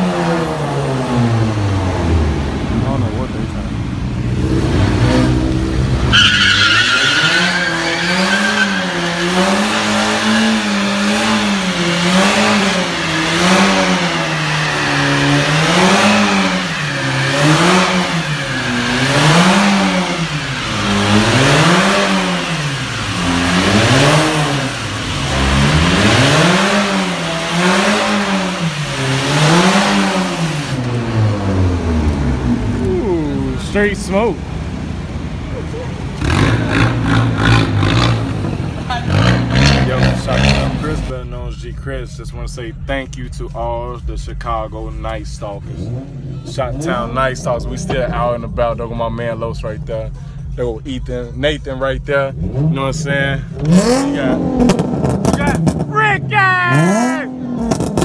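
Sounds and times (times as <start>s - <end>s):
car engine revving: 0.0s - 58.0s
spinning tyres hissing: 4.1s - 35.2s
high tyre squeal: 5.0s - 30.8s.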